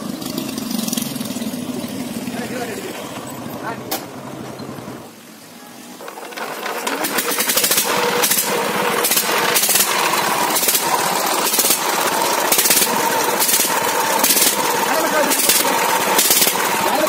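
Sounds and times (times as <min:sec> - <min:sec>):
diesel engine knocking: 0:06.4 - 0:17.0.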